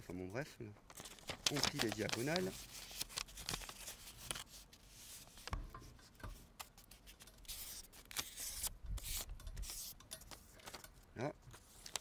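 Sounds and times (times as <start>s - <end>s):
paper crackling as creased: 0.9s - 5.4s, 6.8s - 10.0s, 11.5s - 12.0s
paper rustling and rubbing: 0.9s - 5.6s, 6.6s - 10.8s, 11.5s - 12.0s.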